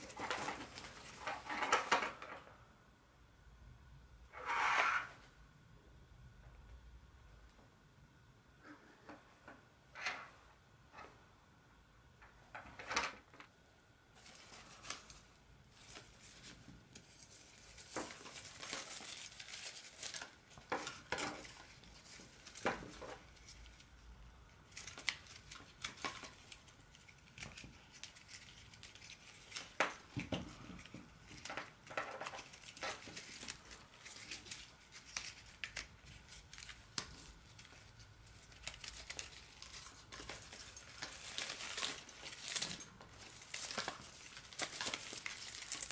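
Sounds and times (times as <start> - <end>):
rope rustling and rubbing: 14.2 - 24.0, 24.6 - 45.9.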